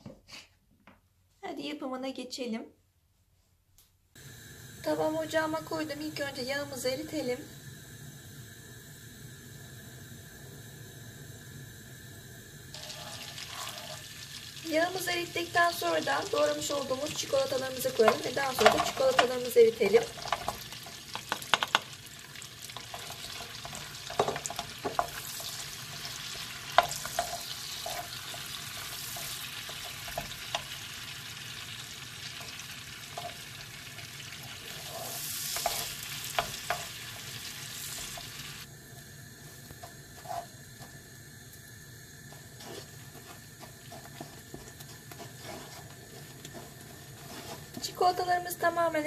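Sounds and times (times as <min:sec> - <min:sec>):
low sizzle: 0:04.2 - 0:49.0
wooden spoon scraping a pan: 0:12.8 - 0:14.4, 0:15.8 - 0:38.6, 0:39.8 - 0:40.6, 0:42.3 - 0:48.2
pieces tumbling into a frying pan: 0:12.8 - 0:38.6
spoon knocking on pan: 0:18.0 - 0:19.4, 0:20.1 - 0:22.0, 0:22.8 - 0:25.2, 0:35.6 - 0:37.0.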